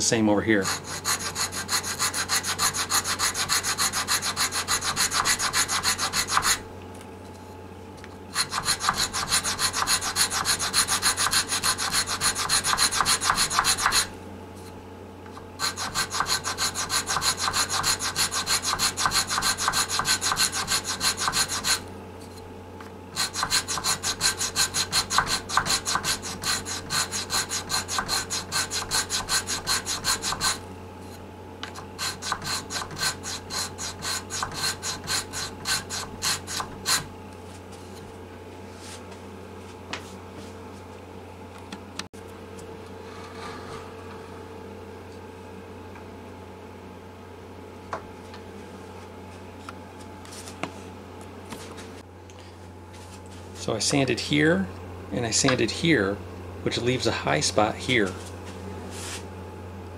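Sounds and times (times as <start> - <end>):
sandpaper rasping on wood: 0.6 - 6.6, 8.4 - 14.1, 15.6 - 21.8, 23.2 - 30.6, 32.0 - 37.1.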